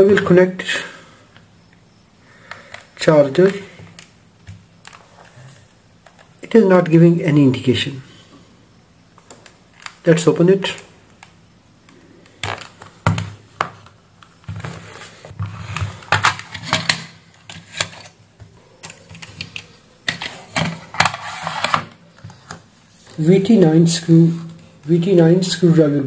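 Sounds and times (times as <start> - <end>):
plastic clicks and clatter: 18.8 - 22.6.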